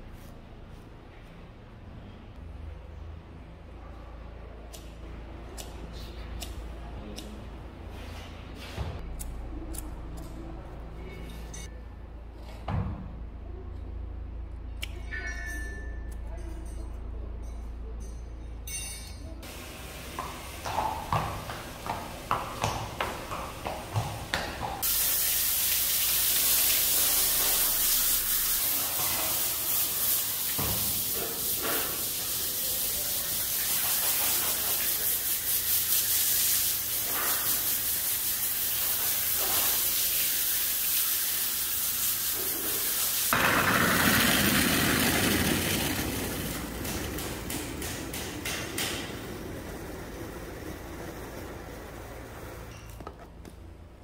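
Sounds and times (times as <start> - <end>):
water hose spraying: 19.5 - 51.6.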